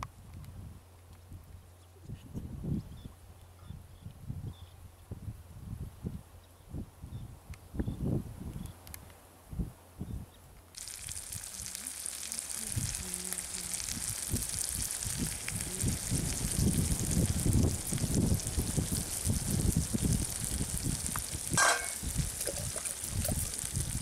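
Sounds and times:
curry sizzling in a pot: 0:10.8 - 0:24.0.

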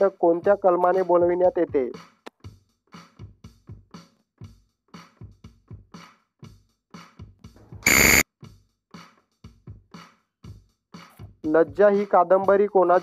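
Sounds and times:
loud buzzer: 0:07.8 - 0:08.2.

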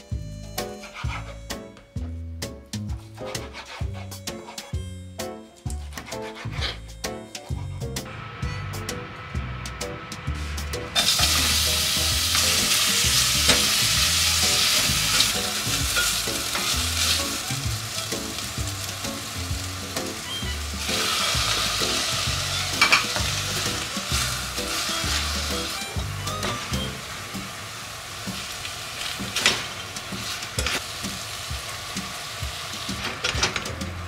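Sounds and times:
food sizzling in hot oil: 0:10.3 - 0:34.0.

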